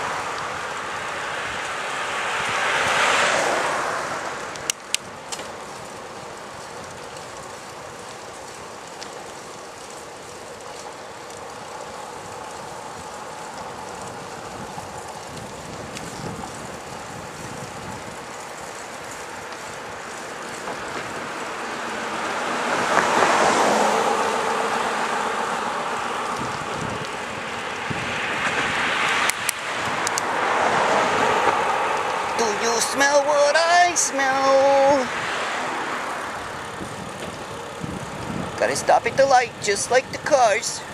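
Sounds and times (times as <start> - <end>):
bicycle road noise: 0.0 - 40.9
wind on microphone: 14.0 - 18.3, 25.9 - 33.5, 36.5 - 40.9.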